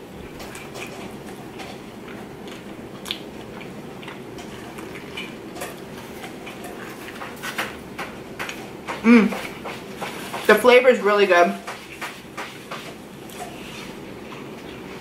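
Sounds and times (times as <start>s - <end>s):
person chewing wetly: 0.2s - 10.0s.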